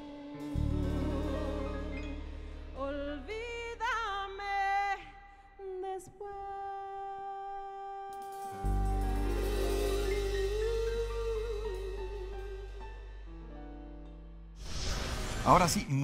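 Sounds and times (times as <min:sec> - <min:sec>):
keyboard-led band: 0:00.0 - 0:03.6, 0:08.2 - 0:14.6
woman singing a ballad: 0:00.0 - 0:13.3.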